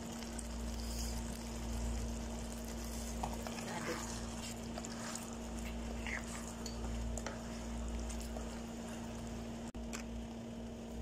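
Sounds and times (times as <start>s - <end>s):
steady low hum: 0.0s - 11.0s
spatula stirring thick sauce: 0.3s - 9.4s.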